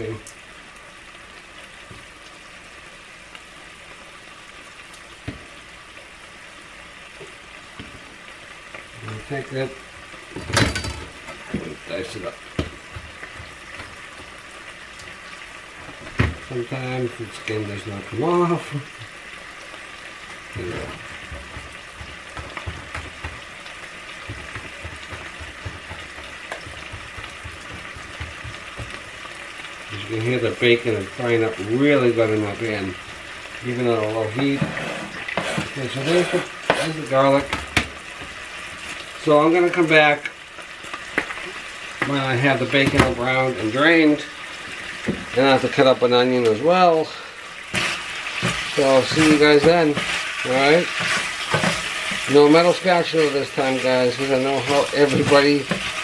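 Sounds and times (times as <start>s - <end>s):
bacon sizzling in a pan: 0.0s - 56.0s.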